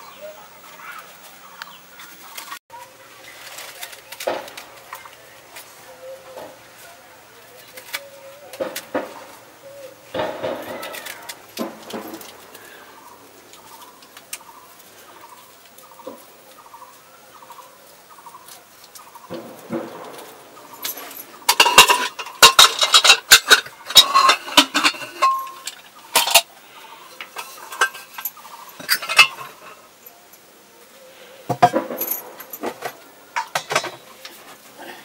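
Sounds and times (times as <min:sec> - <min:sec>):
faint bird calls: 0:04.9 - 0:11.5
metal pots and lids clanking: 0:10.1 - 0:12.8, 0:19.2 - 0:30.0, 0:31.5 - 0:34.6.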